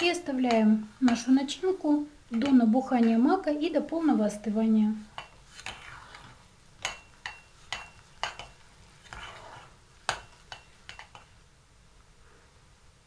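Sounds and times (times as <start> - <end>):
spoon scraping through filling: 5.1 - 11.4
spoon clinking against metal pot: 6.8 - 8.6, 10.1 - 11.3.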